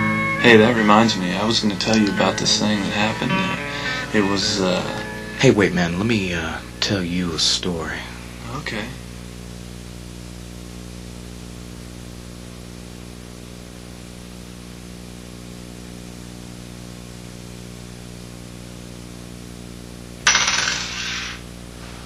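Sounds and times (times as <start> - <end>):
low electrical hum: 0.0 - 22.0
coin clattering on wooden table: 20.3 - 21.5.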